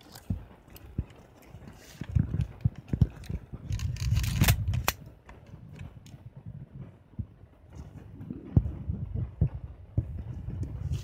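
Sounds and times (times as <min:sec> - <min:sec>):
camera handling noise: 0:03.2 - 0:05.0
sharp camera clicks: 0:03.7 - 0:05.0.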